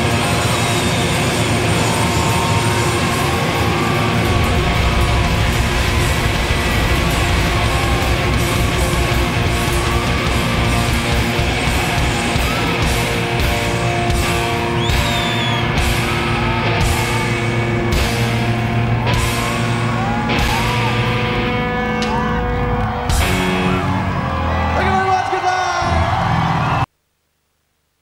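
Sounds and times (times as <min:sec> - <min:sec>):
distorted electric guitar: 0:00.0 - 0:24.8
drums: 0:00.0 - 0:26.9.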